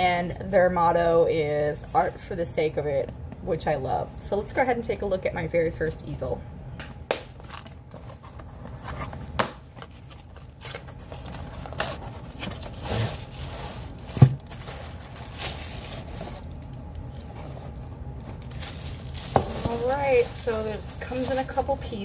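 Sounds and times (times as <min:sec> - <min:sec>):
cardboard scraping: 0:07.4 - 0:16.5
plastic crinkling: 0:07.4 - 0:22.0.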